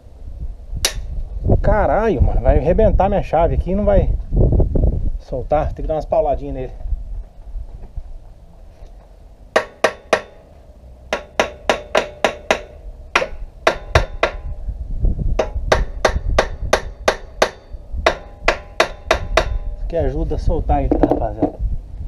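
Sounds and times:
hammer striking metal nut: 9.6 - 10.4, 11.1 - 14.6, 15.4 - 19.8.

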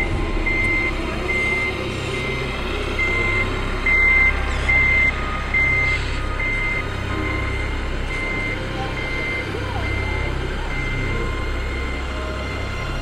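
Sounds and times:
high reversing beeps: 0.0 - 13.0
low rumble: 0.0 - 13.0.

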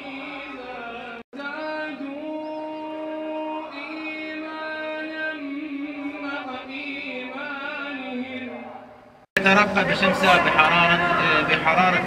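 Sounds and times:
person chanting melodically: 0.0 - 9.1.

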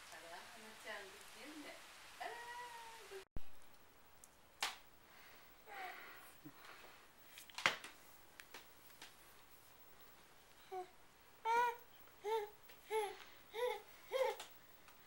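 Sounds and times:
baby whimpering softly: 10.6 - 14.4.

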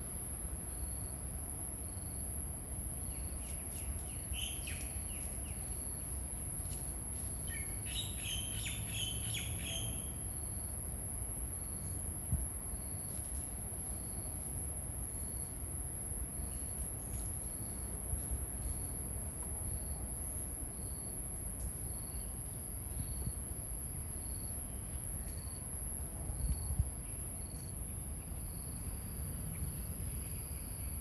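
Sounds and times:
insect high-pitched trill: 2.9 - 12.0
insect short chirps: 3.0 - 10.7.

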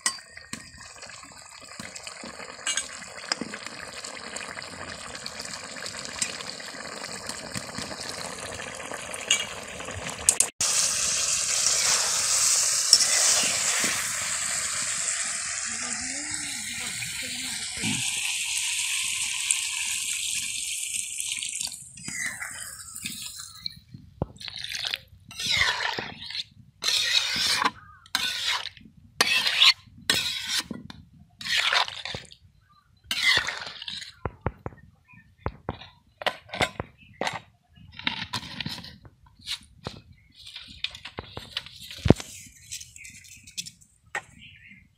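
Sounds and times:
water pouring into a wok: 0.4 - 23.4
metal spatula stirring curry: 25.4 - 30.6, 31.4 - 32.2.

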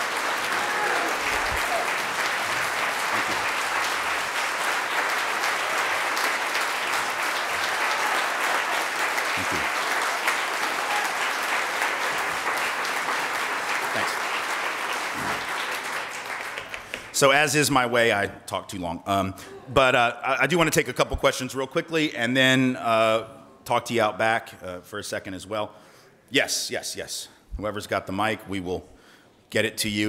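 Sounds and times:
audience applauding: 0.0 - 17.4.

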